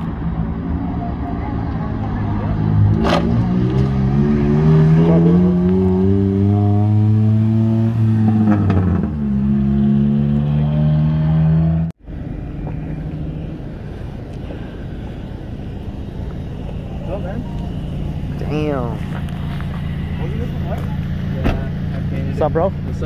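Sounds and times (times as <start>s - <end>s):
car engine accelerating: 0.0s - 23.0s.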